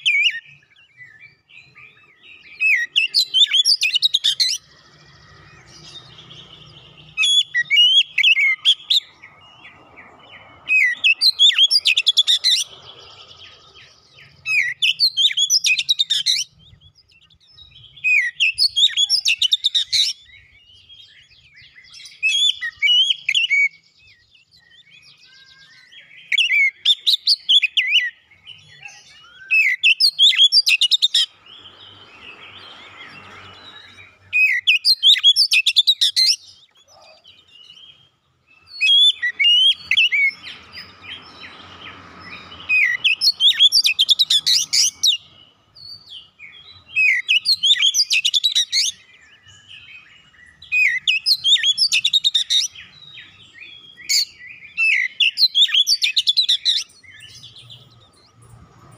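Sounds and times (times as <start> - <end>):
bird singing whistles and chirps: 0.0 - 58.9.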